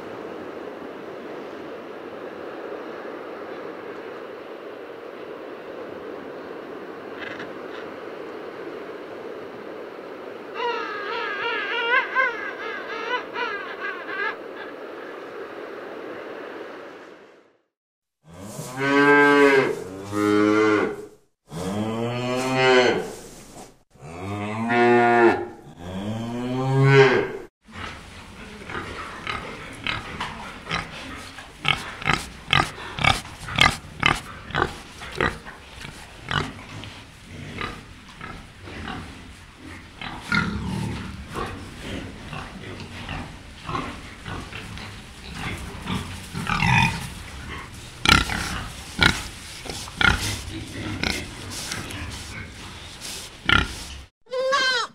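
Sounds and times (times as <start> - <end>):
steady hiss: 0.0 - 17.6, 27.7 - 54.1
pigs grunting and snuffling: 27.7 - 54.1.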